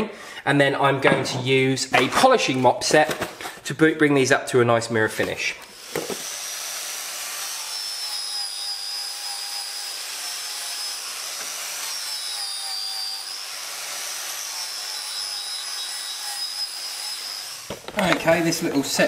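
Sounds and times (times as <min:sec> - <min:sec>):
angle grinder on steel: 0:05.7 - 0:19.0.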